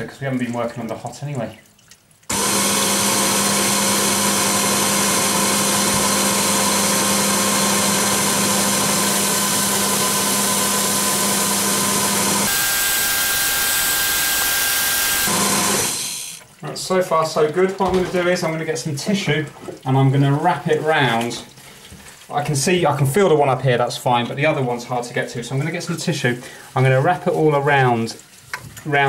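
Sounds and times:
shower pump motor hum: 2.3 - 21.3
water hissing: 12.4 - 16.7.

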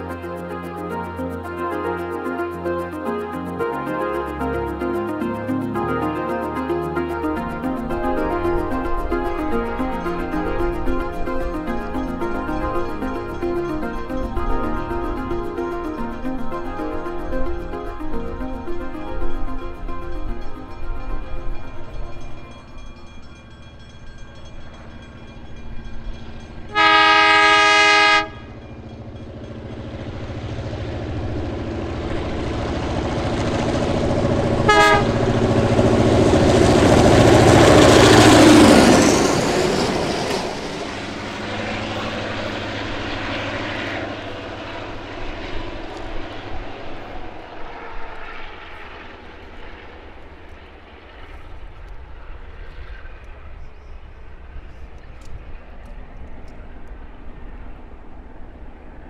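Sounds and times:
locomotive horn blast: 0.0 - 17.8, 26.7 - 28.6, 31.1 - 46.1
diesel locomotive engine: 0.0 - 59.0
train wheels on rails: 8.2 - 59.0.

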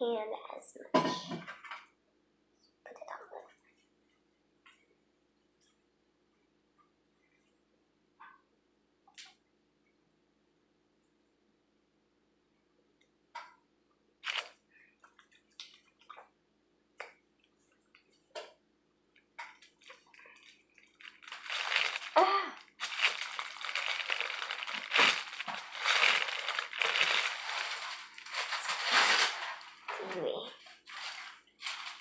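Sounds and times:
puffed rice crunching: 14.2 - 14.5, 20.3 - 29.3.

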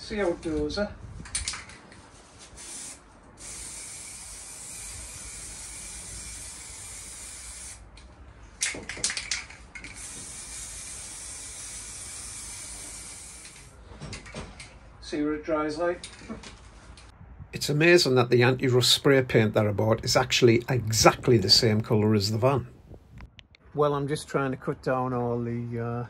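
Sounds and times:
aerosol spray hissing: 2.5 - 7.9, 9.9 - 13.7.

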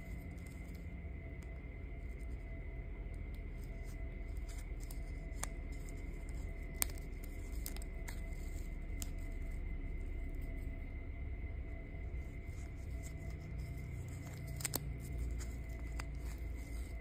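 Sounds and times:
faint high whine: 0.0 - 17.0
steady low hum: 0.0 - 17.0
light clicks and rustles of cord: 3.2 - 9.6, 12.4 - 17.0.

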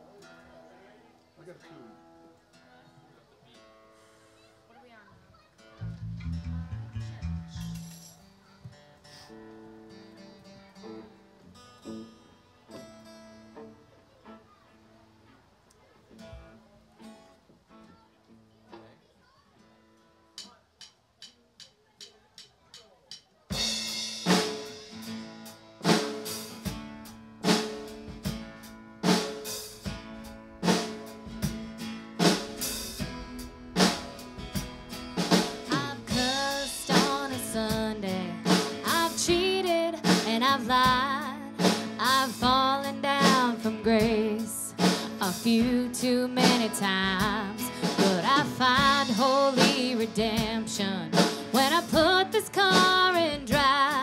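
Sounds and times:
guitars: 5.4 - 15.4, 16.0 - 20.5, 23.5 - 54.0
drum kit beating: 5.8 - 8.2, 20.4 - 54.0
woman singing lead vocal: 35.7 - 54.0.

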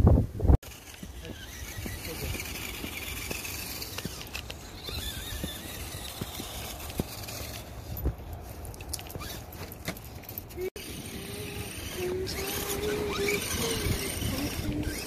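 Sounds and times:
electric motor whine: 0.6 - 8.0, 10.7 - 15.0
footsteps crunching through snow: 1.0 - 10.1.

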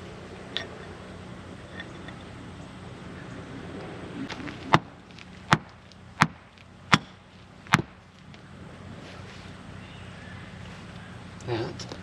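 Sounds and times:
sharp metal knocks: 5.5 - 8.0.

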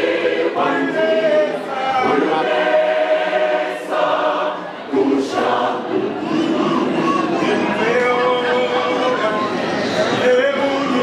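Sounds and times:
choir singing a hymn: 0.0 - 11.0.

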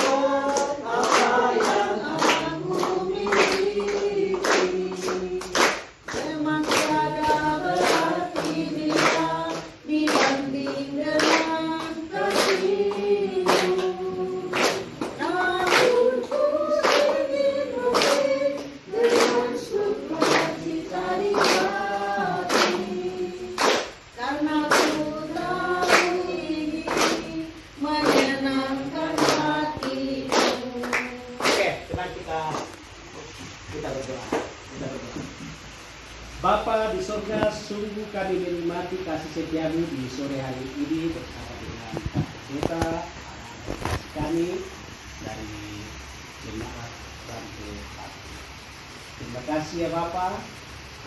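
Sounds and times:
group singing in unison: 0.0 - 32.4, 36.4 - 41.2
hands clapping in rhythm: 0.0 - 32.8, 34.3 - 34.6.

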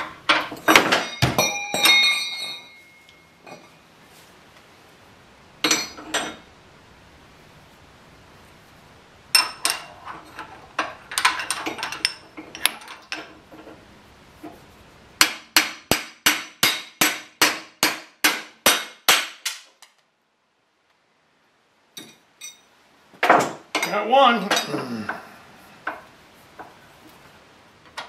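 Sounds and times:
hammer striking metal: 15.2 - 19.6.

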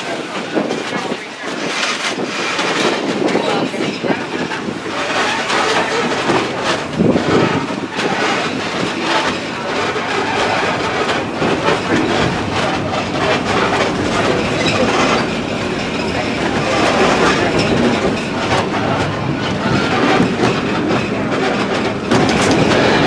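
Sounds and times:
clacking over rail joints: 0.0 - 23.0
train wheels rumbling on track: 0.0 - 23.0.

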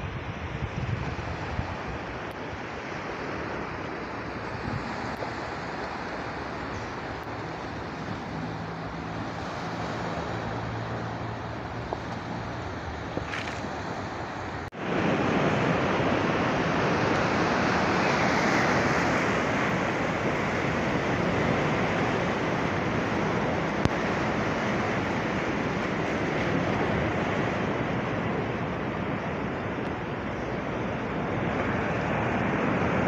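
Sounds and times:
sea surf breaking on shore: 0.0 - 33.0
wind on microphone: 0.0 - 33.0.

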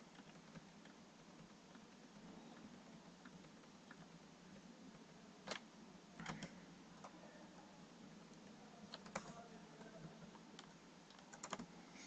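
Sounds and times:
computer keyboard keystrokes: 0.1 - 1.9, 5.4 - 7.2, 8.9 - 9.4, 10.2 - 11.7.

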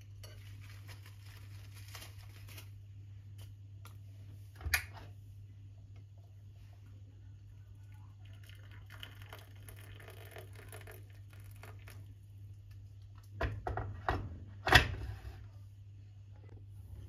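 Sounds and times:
hot water poured into cup: 7.8 - 12.2.

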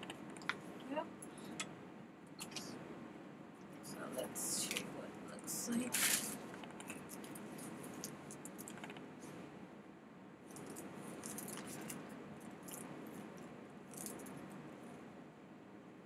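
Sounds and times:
room hiss: 0.0 - 16.0.

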